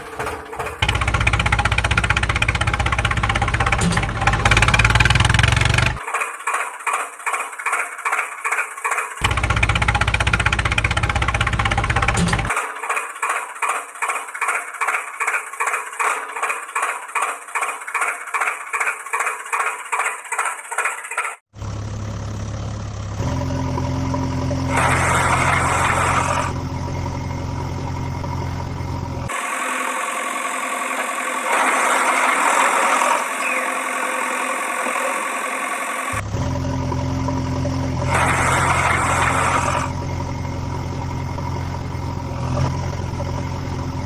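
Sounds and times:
engine chugging: 0.0 - 44.0
deep engine hum: 0.8 - 6.0, 9.2 - 12.5, 21.6 - 29.4, 36.1 - 44.0.

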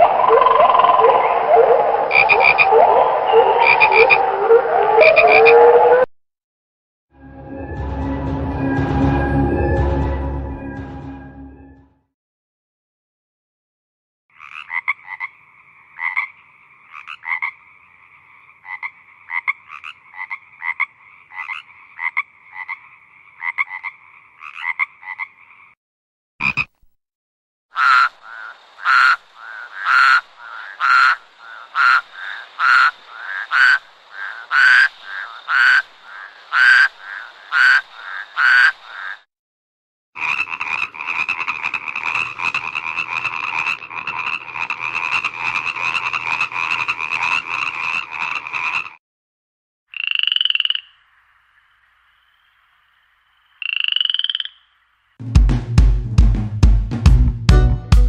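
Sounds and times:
frogs croaking: 0.0 - 6.0, 14.3 - 25.8, 26.4 - 26.8, 27.7 - 39.3, 40.2 - 49.0, 49.9 - 55.2.

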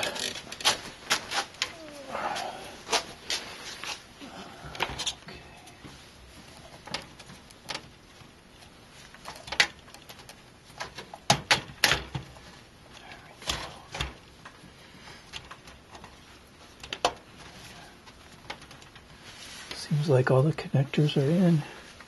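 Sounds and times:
motherboard clicking against metal case: 9.2 - 12.4.

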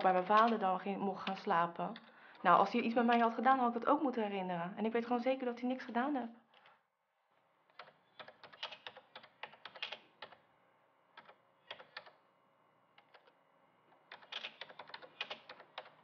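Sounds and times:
computer keyboard typing: 0.0 - 0.6, 1.2 - 2.1, 7.7 - 10.4, 11.1 - 12.2, 13.0 - 13.4, 14.0 - 16.0.

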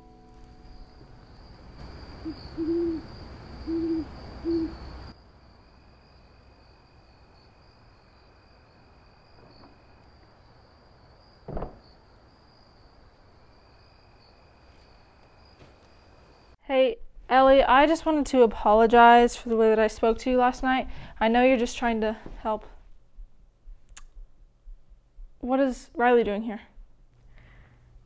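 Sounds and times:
night air hiss: 0.0 - 18.0
owl hooting: 1.8 - 5.1.

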